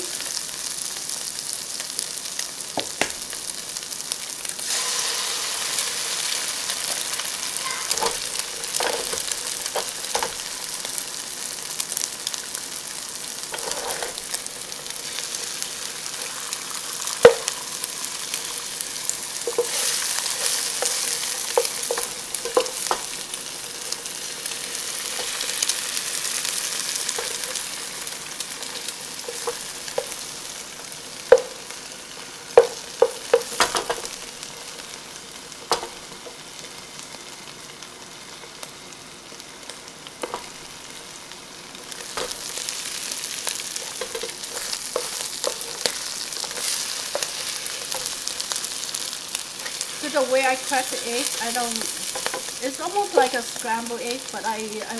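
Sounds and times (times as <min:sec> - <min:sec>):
sausage sizzling in oil: 0:00.0 - 0:54.9
spatula scraping a wok: 0:13.4 - 0:16.1, 0:19.4 - 0:23.2.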